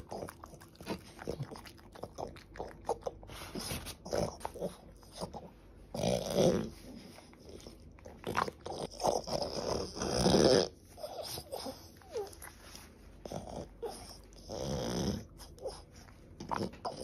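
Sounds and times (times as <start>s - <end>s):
dog whining: 10.2s - 12.8s.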